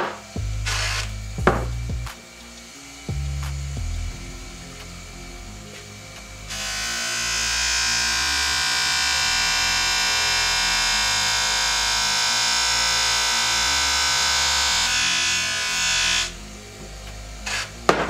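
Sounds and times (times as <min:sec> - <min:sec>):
electronic music with a beat: 0:00.0 - 0:07.1
bench polisher high whine: 0:00.0 - 0:18.0.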